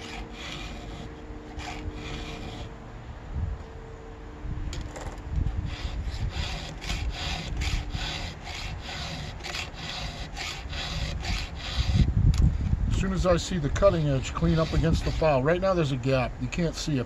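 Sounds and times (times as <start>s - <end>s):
file rasping on chainsaw chain: 0.0s - 2.7s, 5.6s - 12.1s, 13.9s - 15.6s.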